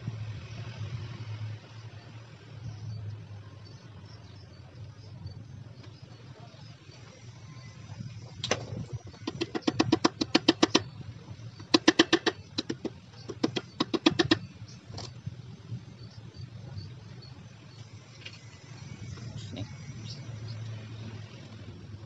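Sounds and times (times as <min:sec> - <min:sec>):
rapid metallic ratchet clicking: 0:06.5 - 0:15.1.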